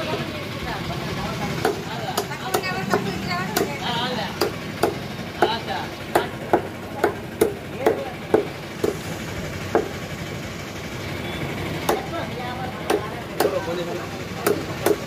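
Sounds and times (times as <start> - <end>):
cleaver chopping on wooden block: 1.6 - 3.8, 4.4 - 9.0.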